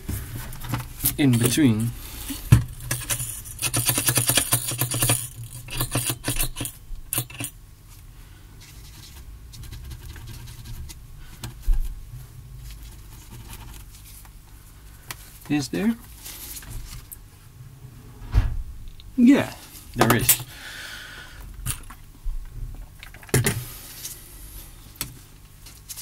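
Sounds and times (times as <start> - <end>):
faint steady hum: 0.0 - 26.0
low thud: 18.2 - 18.9.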